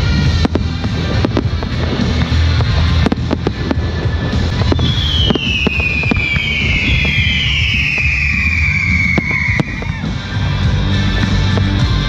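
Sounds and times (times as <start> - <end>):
firework bangs: 0.0 - 12.0
firework whistles falling in pitch: 3.6 - 10.6.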